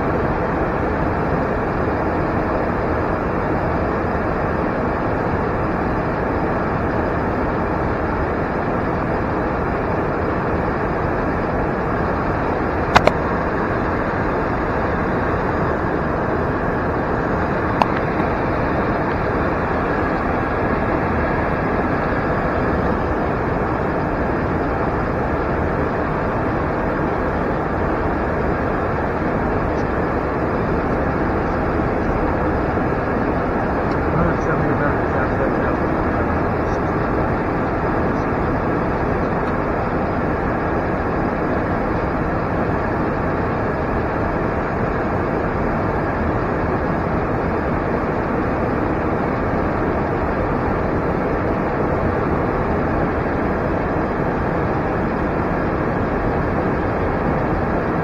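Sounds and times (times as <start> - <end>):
airliner in-flight rush: 0.0 - 58.0
sharp click: 12.9 - 13.2.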